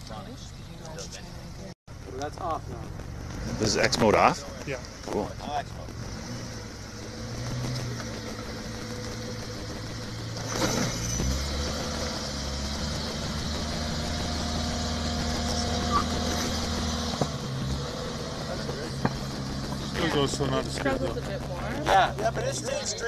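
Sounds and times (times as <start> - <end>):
car engine climbing: 0.0 - 23.0.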